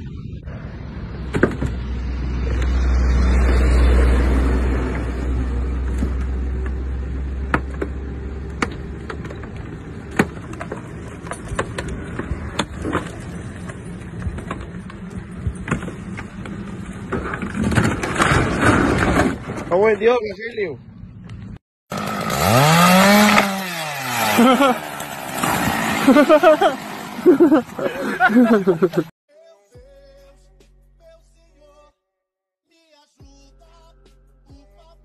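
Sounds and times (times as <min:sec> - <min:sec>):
heavy vehicle engine rumbling: 0:00.0 - 0:17.8.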